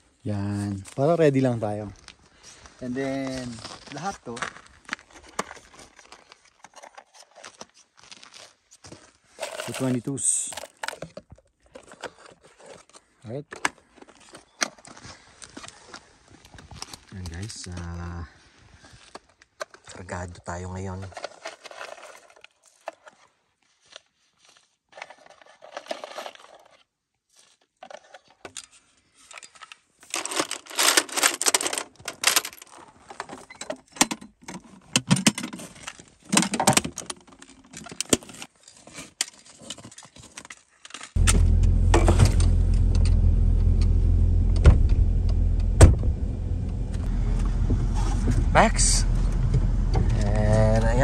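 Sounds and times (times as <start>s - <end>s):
gear jangling and clinking: 9.3s - 11.1s
vehicle engine humming: 41.2s - 51.0s.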